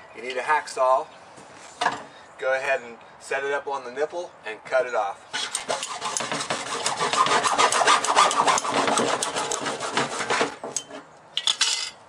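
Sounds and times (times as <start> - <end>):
hacksaw cutting plastic: 5.3 - 11.0
rasping handling noise: 5.3 - 11.1.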